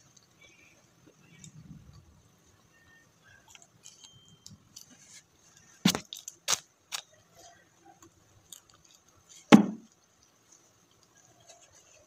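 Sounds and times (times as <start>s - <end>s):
chewing crispy chicken skin: 2.7s - 12.0s.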